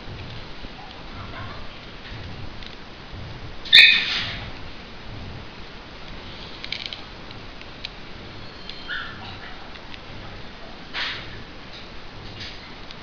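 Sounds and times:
sharp squeak: 3.7s - 4.4s, 8.4s - 9.1s.

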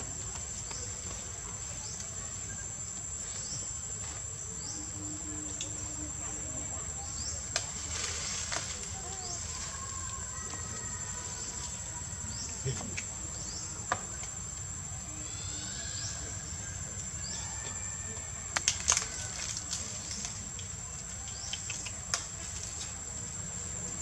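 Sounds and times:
insects droning: 0.0s - 24.0s
sharp clicks: 20.6s - 22.3s.

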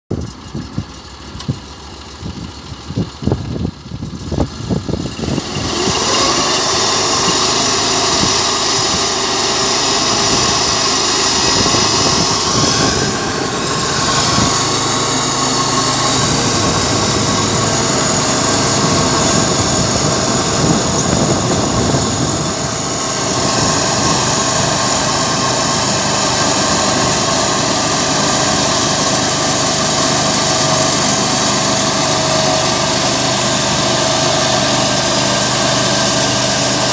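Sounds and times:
sawmill engine revving: 3.8s - 36.9s
saw cutting log: 5.2s - 36.9s.

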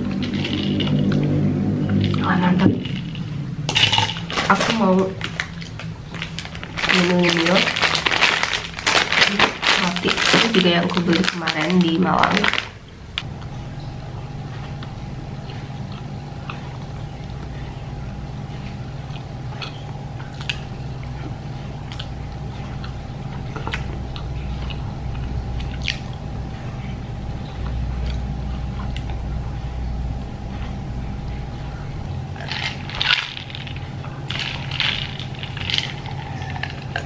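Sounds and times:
low background hum: 0.0s - 37.0s
person chewing bread: 14.6s - 17.7s, 18.6s - 26.3s, 32.3s - 37.0s.

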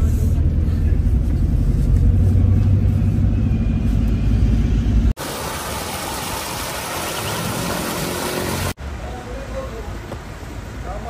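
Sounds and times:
vehicle engine and road rumble: 0.0s - 11.0s
fountain water splashing: 5.2s - 8.8s.

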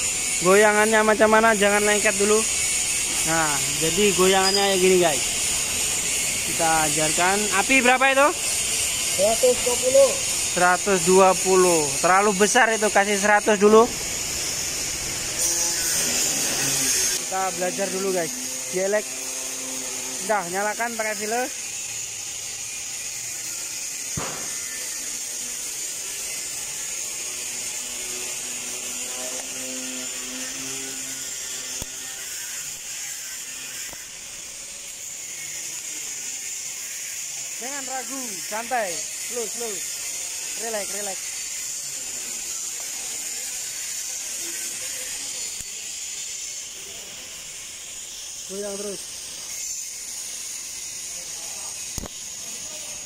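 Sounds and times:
welding equipment hissing: 0.0s - 53.0s
sharp click: 24.2s - 24.8s, 51.9s - 52.2s.

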